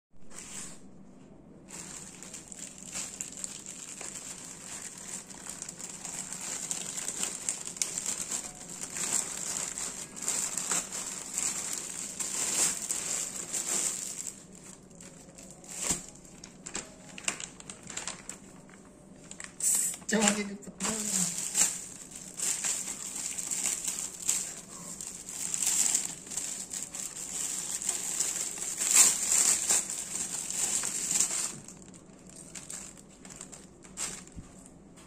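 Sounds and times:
plastic packaging crinkling: 1.7 - 35.0.

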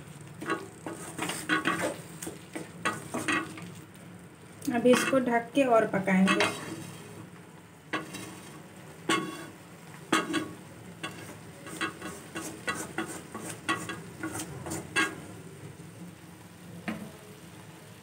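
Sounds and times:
greens sizzling softly: 0.0 - 18.0
wooden spatula knocking metal pan: 10.1 - 15.2.

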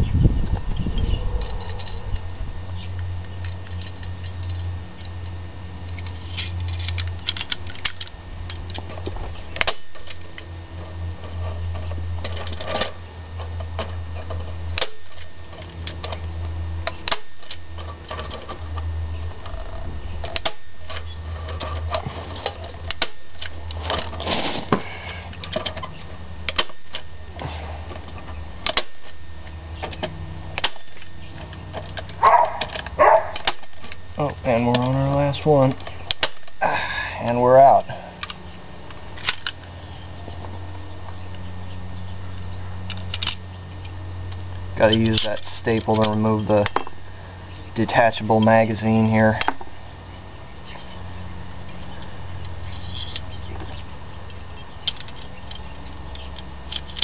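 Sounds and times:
steady low hum: 0.0 - 57.0
clattering of tool and mesh: 3.3 - 36.6, 42.8 - 47.0, 52.0 - 57.0.

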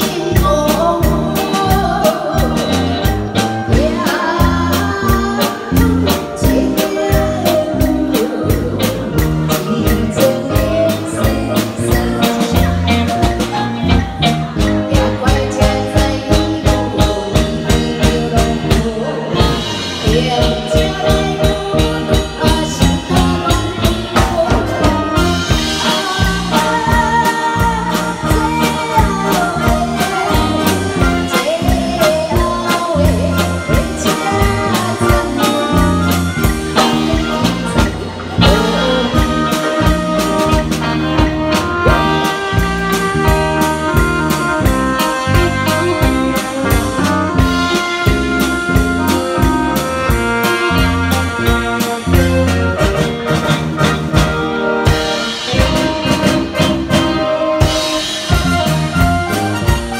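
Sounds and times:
woman singing into microphone: 0.0 - 13.2, 14.6 - 40.6
drum kit beat: 0.0 - 59.9
guitar: 0.0 - 59.9
keyboard: 0.0 - 59.9.

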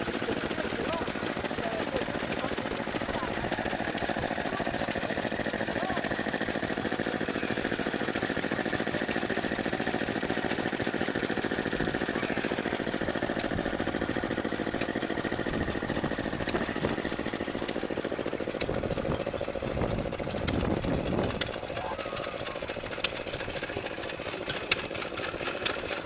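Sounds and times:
small stationary engines running: 0.0 - 26.0.

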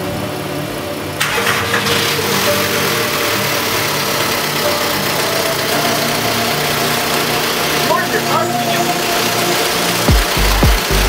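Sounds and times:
diesel engine idling: 1.2 - 11.0.

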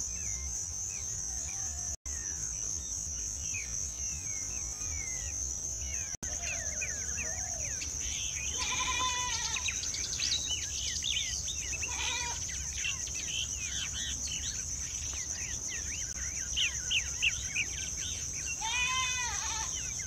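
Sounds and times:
high insect buzz: 7.5 - 20.0.

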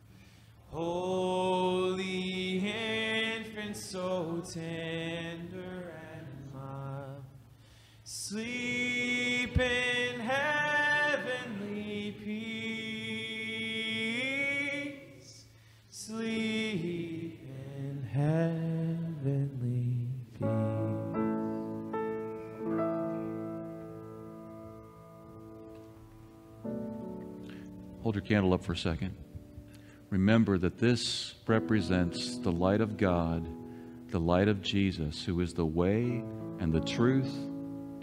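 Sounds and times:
voices singing a slow hymn: 0.7 - 7.5, 8.1 - 21.9.

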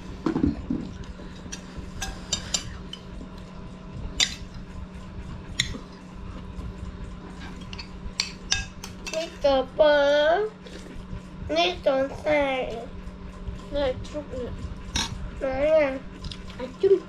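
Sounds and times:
low hum: 0.0 - 17.0
chewing and mouth sounds: 16.1 - 16.8.

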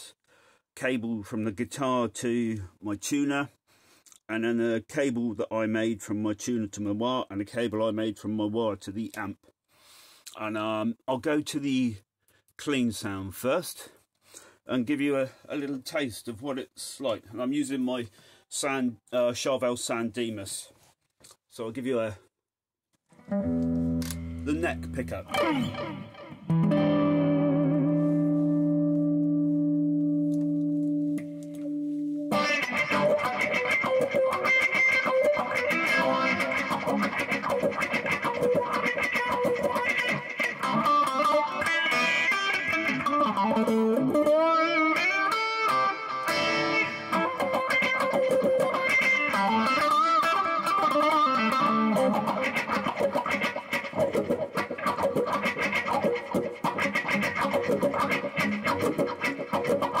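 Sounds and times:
clean electric guitar with wah: 23.2 - 60.0.

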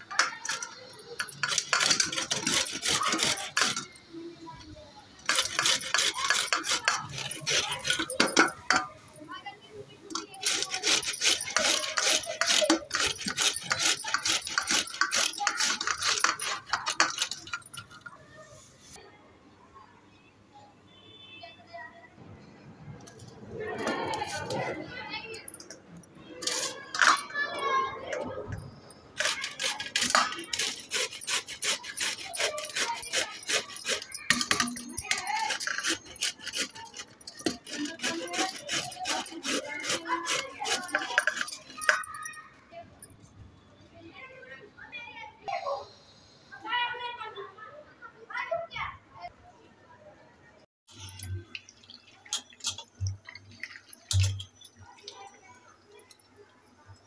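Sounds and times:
carrot rasping on grater: 0.1 - 4.0, 5.2 - 8.6, 10.2 - 17.9, 29.2 - 42.3.

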